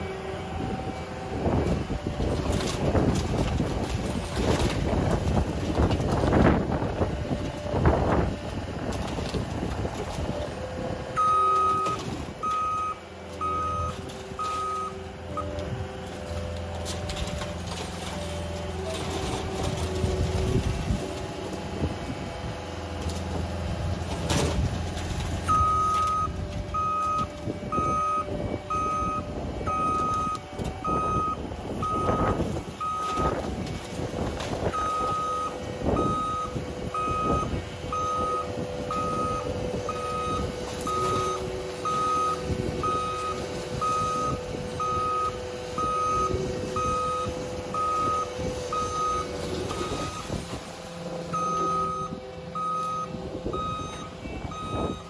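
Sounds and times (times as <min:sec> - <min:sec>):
diesel engine running: 0:00.0 - 0:55.0
reversing alarm beeping: 0:11.1 - 0:15.7, 0:25.5 - 0:33.4, 0:34.7 - 0:50.4, 0:51.3 - 0:55.0.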